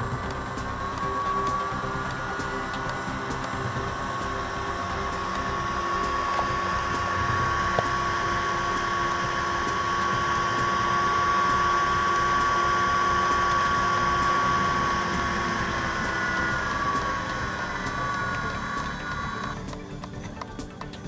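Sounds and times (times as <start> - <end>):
small blower fan whining: 0.0 - 21.0.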